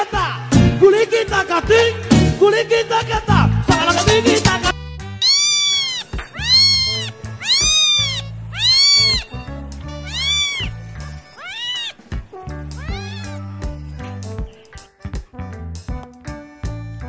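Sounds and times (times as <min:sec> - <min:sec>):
background music: 0:00.0 - 0:17.0
cat meowing: 0:05.1 - 0:13.9.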